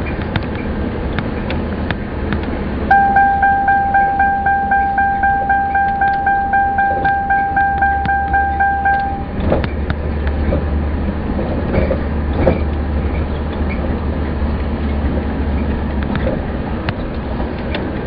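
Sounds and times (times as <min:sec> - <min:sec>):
car cabin rumble: 0:00.0 - 0:18.0
rapid electronic chime beeps: 0:02.9 - 0:09.4.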